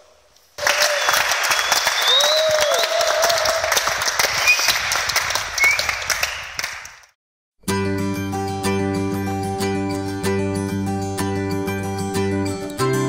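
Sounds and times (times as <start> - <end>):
small group clapping: 0.6 - 7.2.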